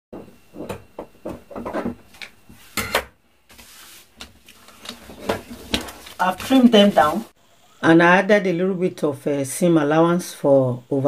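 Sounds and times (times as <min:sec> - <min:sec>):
fabric and paper handled: 0:03.5 - 0:07.4.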